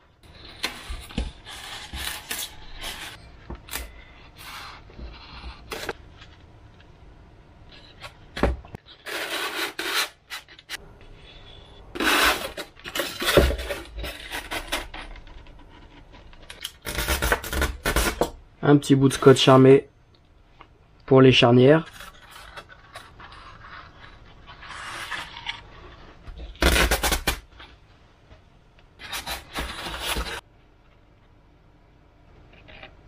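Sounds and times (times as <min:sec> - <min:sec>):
foam sheets rubbing and scraping: 0:00.4 - 0:03.2, 0:08.9 - 0:10.8, 0:11.9 - 0:16.2, 0:29.0 - 0:30.5.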